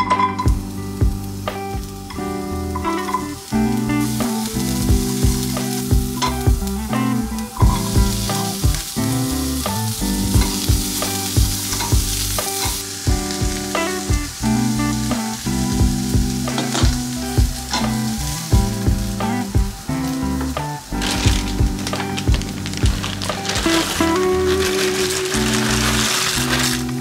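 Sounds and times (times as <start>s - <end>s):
vegetables sizzling in frying pan: 0.0s - 27.0s
spatula scraping pan: 21.0s - 27.0s.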